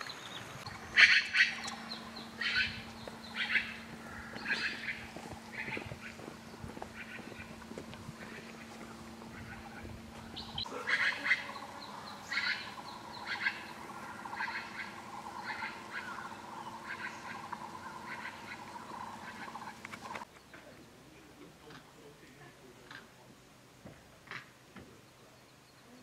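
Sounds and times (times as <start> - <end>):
low steady hum: 0.0 - 23.8
magpie harsh calls: 0.8 - 6.2, 6.9 - 7.6, 8.2 - 20.2.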